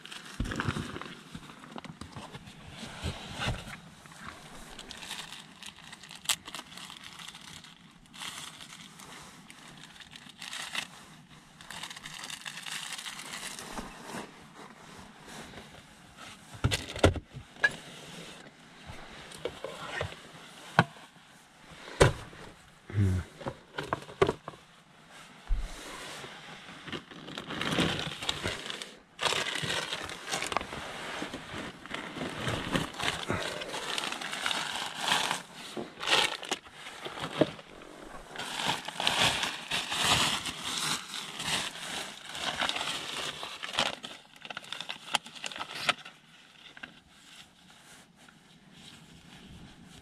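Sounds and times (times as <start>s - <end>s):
plastic bags crinkling: 0.0s - 14.0s, 26.8s - 46.9s.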